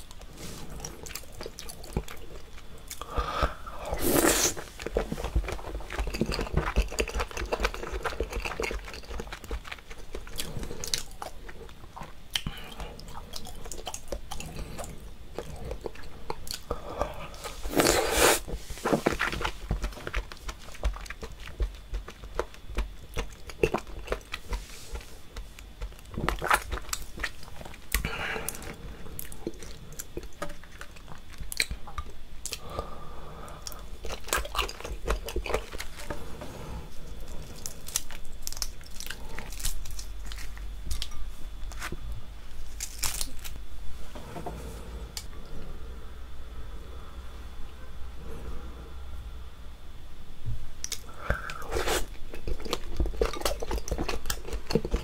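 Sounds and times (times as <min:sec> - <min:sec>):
wet chewing and mouth smacks: 0:04.5 - 0:16.7, 0:18.9 - 0:32.6, 0:50.8 - 0:55.0.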